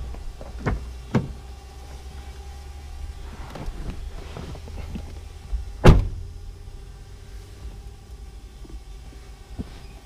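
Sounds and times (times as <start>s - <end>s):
steady low hum: 0.0s - 10.0s
clothing rustling against seat: 3.2s - 5.4s, 9.1s - 10.0s
thump: 5.8s - 6.2s.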